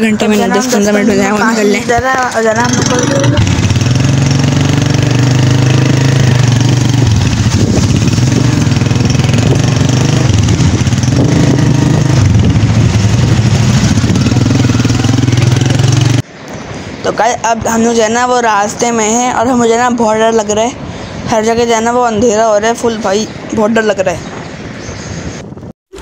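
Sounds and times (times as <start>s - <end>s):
small motorcycle engine running: 2.5s - 16.2s.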